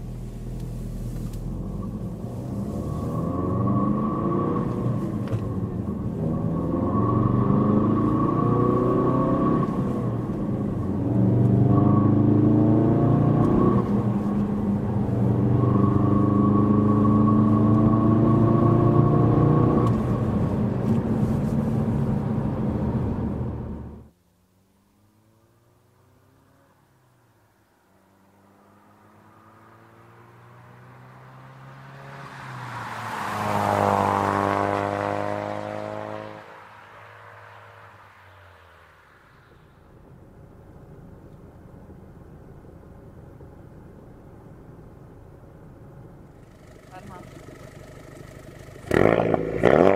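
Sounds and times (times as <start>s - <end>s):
car engine accelerating hard: 0.0s - 24.1s, 28.2s - 36.6s, 46.2s - 49.9s.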